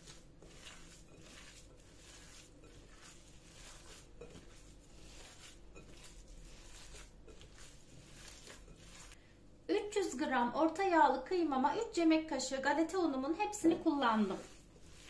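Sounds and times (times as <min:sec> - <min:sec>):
meat mixture squishing by hand: 0:00.0 - 0:09.2, 0:14.0 - 0:15.0.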